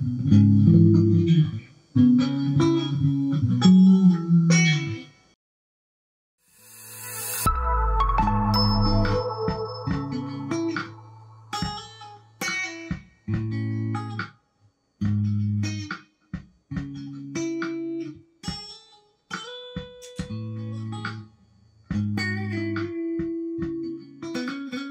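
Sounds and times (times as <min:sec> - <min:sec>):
electric guitar soul phrases: 0:00.0 - 0:05.0.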